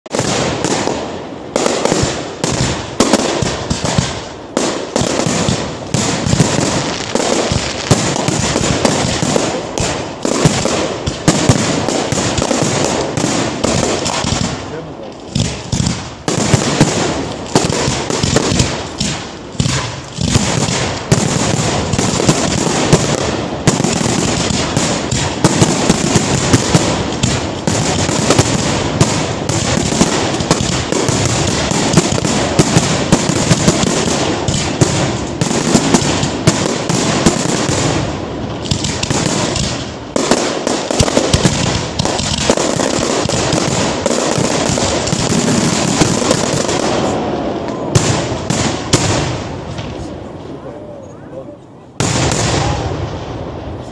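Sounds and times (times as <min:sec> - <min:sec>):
fireworks bursting: 0:00.0 - 0:53.9.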